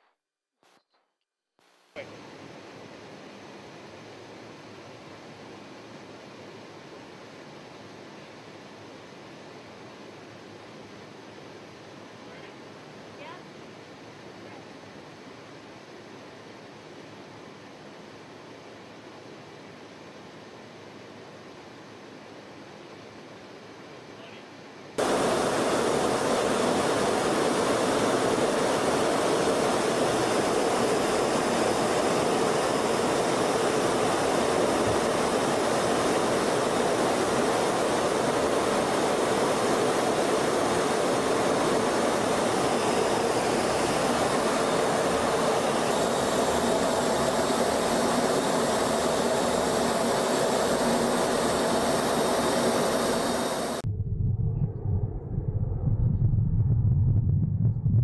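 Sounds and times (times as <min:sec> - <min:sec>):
jet aircraft roar: 0:25.0 - 0:57.1
low rumble: 0:53.8 - 0:58.0.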